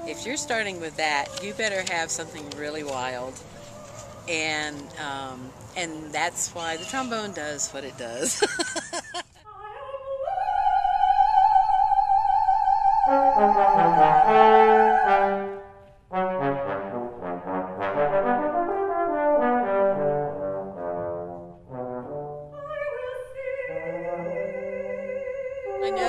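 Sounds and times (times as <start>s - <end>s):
trombone playing: 0.0s - 1.6s, 13.1s - 22.6s
soprano singing high note: 25.7s - 26.0s.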